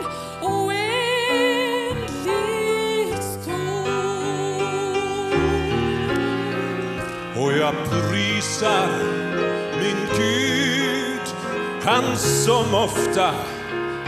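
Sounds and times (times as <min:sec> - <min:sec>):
woman singing a hymn: 0:00.0 - 0:09.0
gentle instrumental accompaniment: 0:00.0 - 0:14.0.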